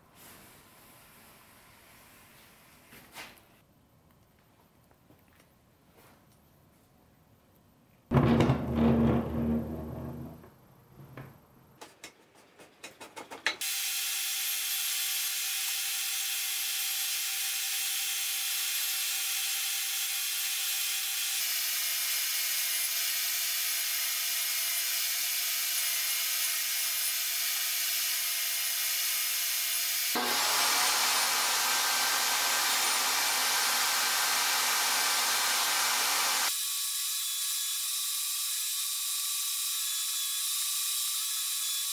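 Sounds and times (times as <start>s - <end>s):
rubbing and knocks: 8.1s - 10.4s
table saw ripping boards: 8.1s - 10.4s, 30.1s - 36.5s.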